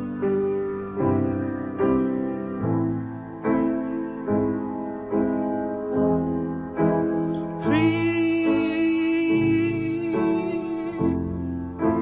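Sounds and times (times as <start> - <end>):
piano chords: 0.0 - 12.0
man singing long note: 7.6 - 11.4.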